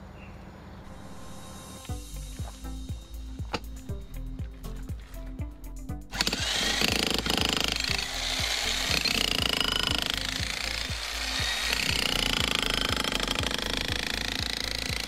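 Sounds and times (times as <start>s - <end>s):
background music with low beat: 0.9s - 15.0s
demolition hammer chiseling concrete: 6.2s - 15.0s.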